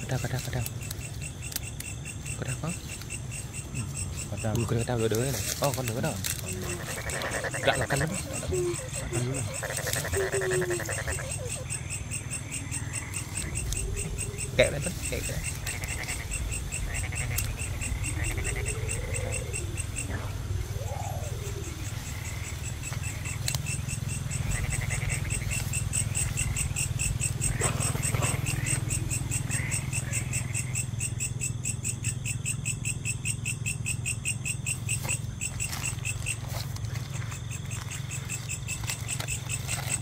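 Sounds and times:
frogs and insects trilling: 0:00.0 - 0:40.0
rising and falling calls: 0:06.0 - 0:30.6
low drone: 0:07.6 - 0:23.6.

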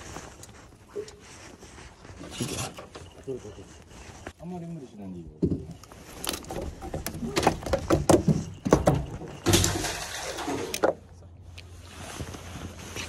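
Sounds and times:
rustling clatter: 0:05.7 - 0:11.1.

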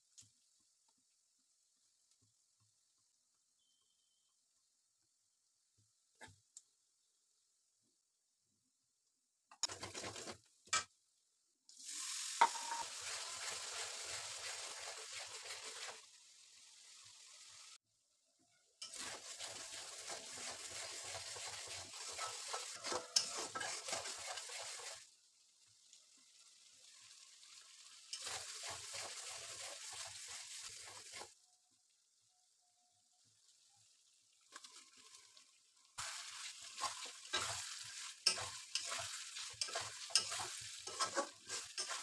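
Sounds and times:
metal spatula scraping pan: 0:09.5 - 0:10.4, 0:20.0 - 0:25.0, 0:36.0 - 0:42.0
food sizzling in oil: 0:11.7 - 0:17.8, 0:18.8 - 0:32.3, 0:33.2 - 0:42.0.

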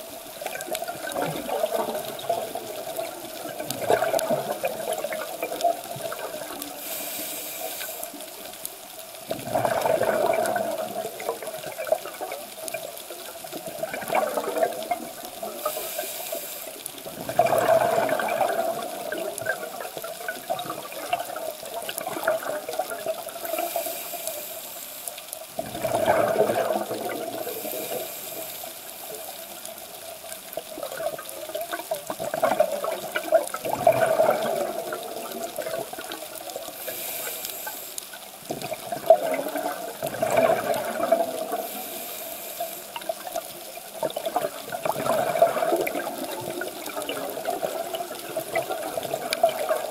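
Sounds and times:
underwater exhalation bubbling: 0:00.0 - 0:08.5, 0:09.2 - 0:24.4, 0:25.5 - 0:37.8, 0:38.4 - 0:49.9
regulator hiss: 0:06.4 - 0:08.9, 0:15.5 - 0:17.1, 0:23.4 - 0:25.6, 0:27.3 - 0:29.7, 0:36.5 - 0:38.4, 0:41.5 - 0:43.1.

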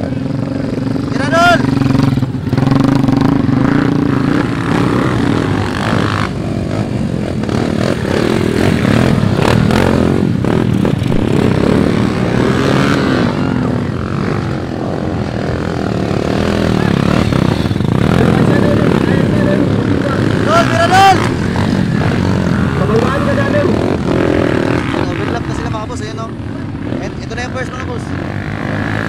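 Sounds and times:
dirt bike engines revving: 0:00.0 - 0:29.0.

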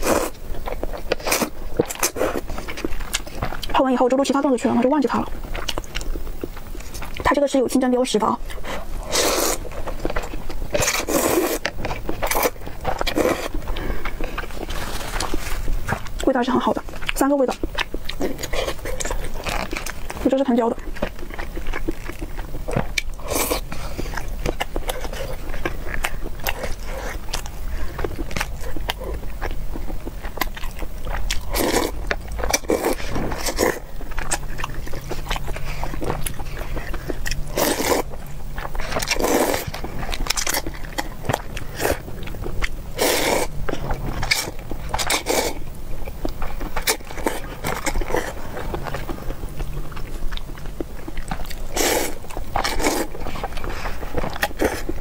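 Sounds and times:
chewing and slurping: 0:00.0 - 0:55.0.

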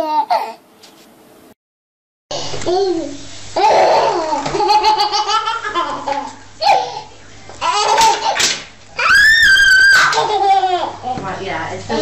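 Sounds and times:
baby laughing and squealing: 0:02.7 - 0:11.0.

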